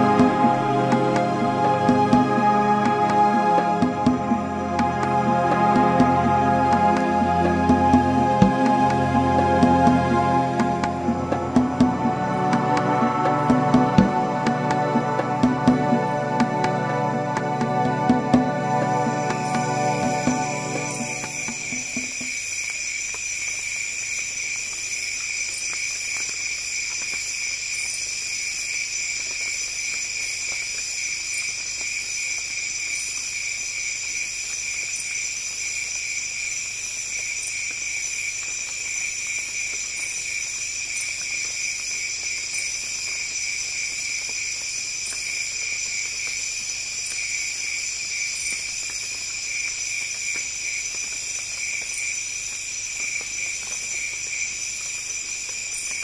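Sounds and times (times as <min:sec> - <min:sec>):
pulsing insect trill: 0:18.4 - 0:56.0
shrill insect drones: 0:18.6 - 0:56.0.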